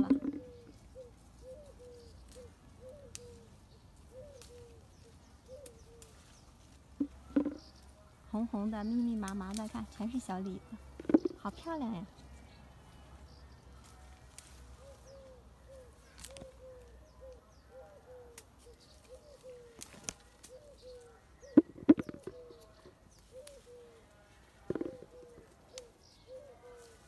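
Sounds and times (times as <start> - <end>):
bird giving low notes: 0.0 - 7.9, 14.7 - 26.8
branches clicking and knocking: 4.0 - 7.9, 9.2 - 10.2, 10.9 - 11.6, 13.8 - 15.1, 16.0 - 17.4, 18.3 - 20.8, 21.5 - 23.8, 24.6 - 26.0.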